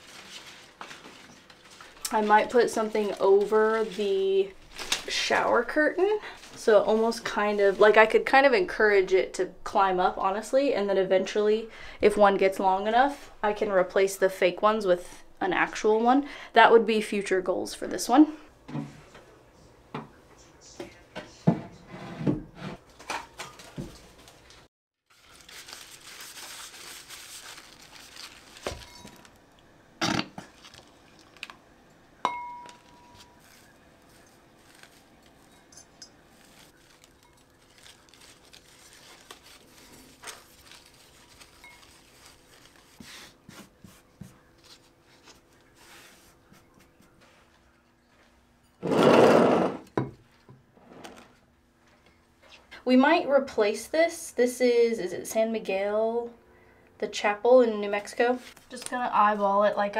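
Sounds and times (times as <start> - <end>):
soil rustling: 32.7 - 43.6.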